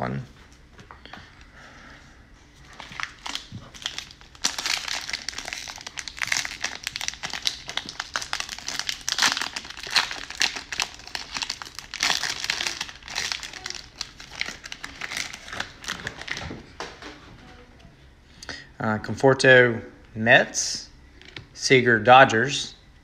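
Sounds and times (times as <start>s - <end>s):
cellophane wrapper crinkling: 2.6s - 16.9s.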